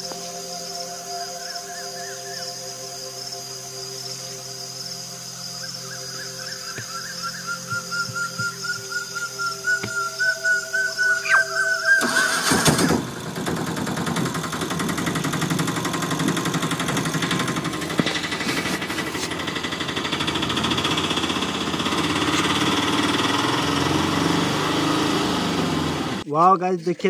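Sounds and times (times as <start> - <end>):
whistled music tune: 5.5 - 12.5
small engine puttering: 11.2 - 26.3.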